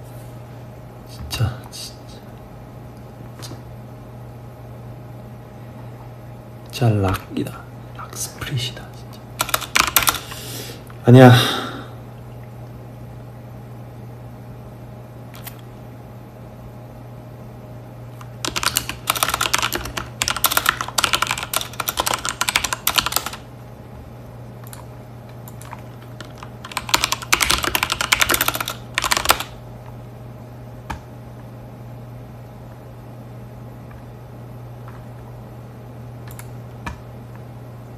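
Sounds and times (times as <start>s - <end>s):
steady low hum: 0.0s - 37.9s
rapid clicking like typing: 9.4s - 10.3s, 18.4s - 23.4s, 24.6s - 29.6s, 36.3s - 37.0s.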